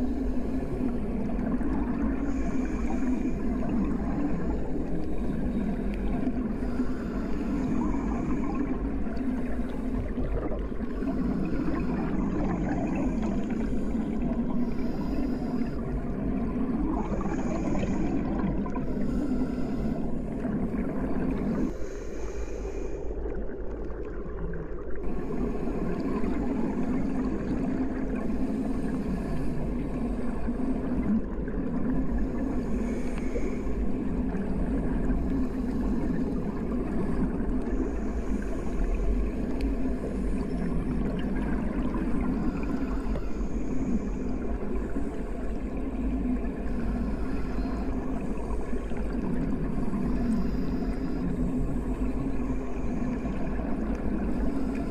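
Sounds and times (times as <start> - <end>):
underwater water rumble and gurgling: 0.0 - 54.9.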